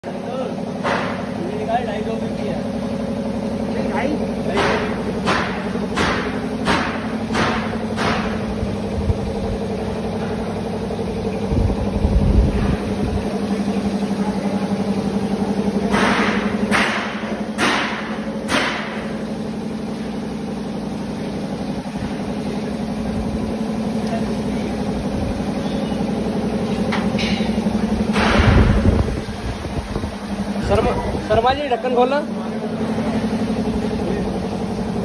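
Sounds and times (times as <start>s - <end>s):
mixer machine motor hum: 0.1s - 35.0s.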